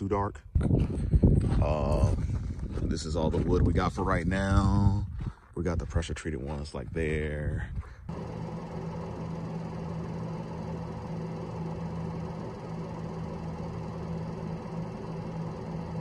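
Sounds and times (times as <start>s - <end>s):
engine idling: 8.1s - 16.0s.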